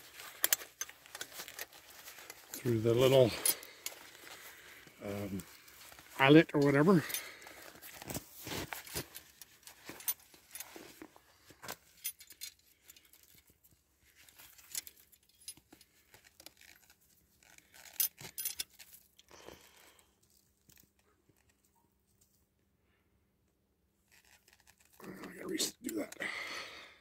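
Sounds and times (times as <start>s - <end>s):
handling rustles: 0.0s - 22.4s
metal hardware clinking: 0.1s - 4.4s.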